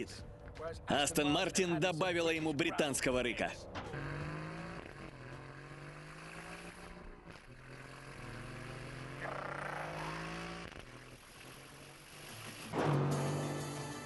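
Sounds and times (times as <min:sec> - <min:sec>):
car engine under throttle: 0:03.6 - 0:12.3.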